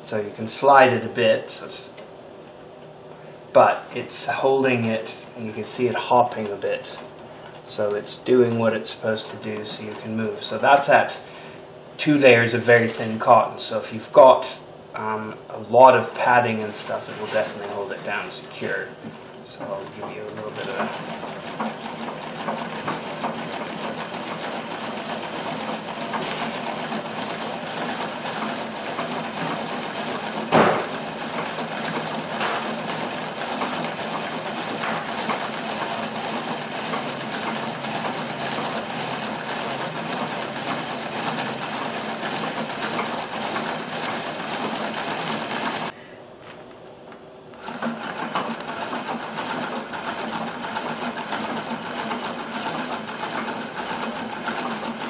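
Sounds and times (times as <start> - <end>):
sewing machine needle clatter: 19.1 - 45.9, 47.6 - 55.0
sharp knock: 30.5 - 30.9.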